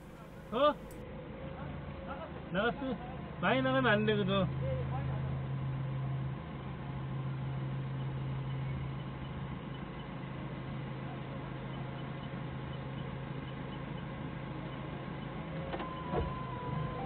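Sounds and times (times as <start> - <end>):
forklift engine humming: 0.0 - 1.0.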